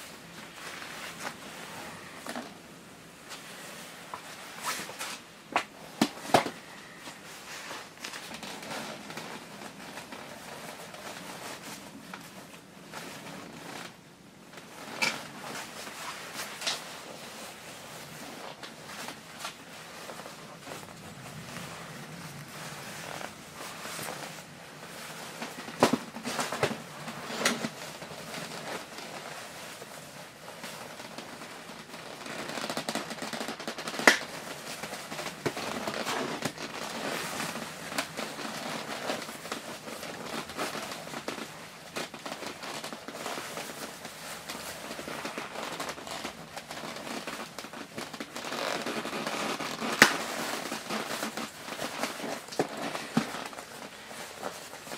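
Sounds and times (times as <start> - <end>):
nylon fabric rustling: 0.0 - 54.9
fabric snaps: 32.5 - 42.9, 43.6 - 54.8.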